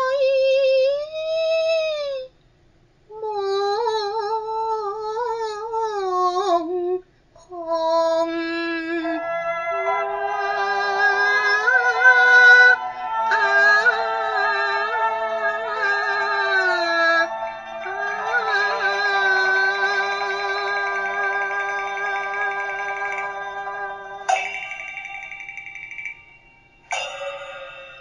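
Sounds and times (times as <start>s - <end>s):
woman singing opera: 0.0s - 2.3s, 3.1s - 24.3s
instrumental accompaniment: 11.4s - 28.0s.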